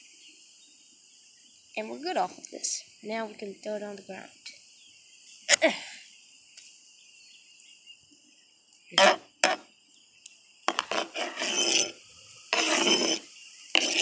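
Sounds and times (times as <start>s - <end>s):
insects chirring: 0.0s - 14.0s
knife scraping cutting board: 9.0s - 9.6s, 10.7s - 14.0s.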